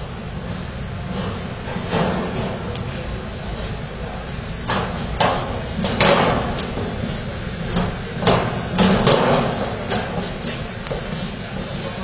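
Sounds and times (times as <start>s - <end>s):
construction site rumble: 0.0s - 12.0s
knocks and bangs: 4.7s - 7.0s.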